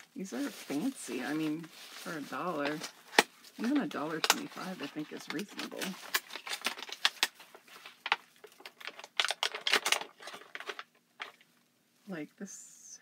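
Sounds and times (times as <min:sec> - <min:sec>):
plastic clicks and rustles: 0:02.5 - 0:11.6.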